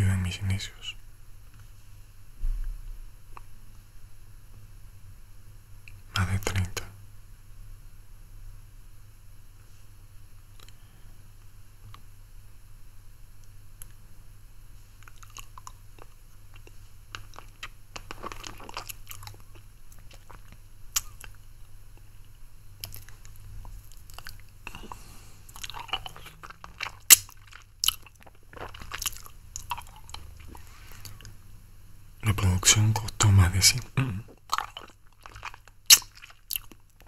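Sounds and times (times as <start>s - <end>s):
mouth sucking a lollipop: 34.7s - 36.6s.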